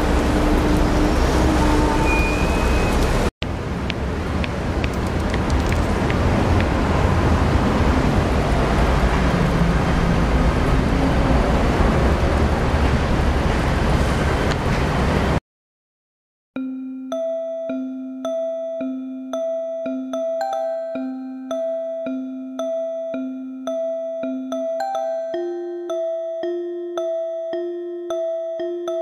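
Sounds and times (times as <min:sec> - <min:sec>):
traffic-like rush: 0:00.0 - 0:15.4.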